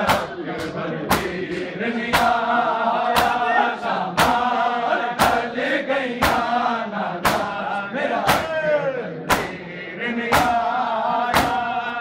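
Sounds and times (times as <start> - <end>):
men chanting together: 0.0 - 12.0
hands beating chests: 9.3 - 9.6.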